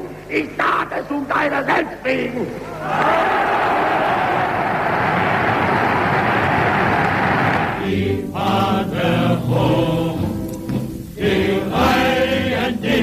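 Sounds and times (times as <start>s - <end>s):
crowd cheering: 2.7s - 7.9s
crowd chanting in unison: 2.8s - 10.4s, 11.2s - 13.0s.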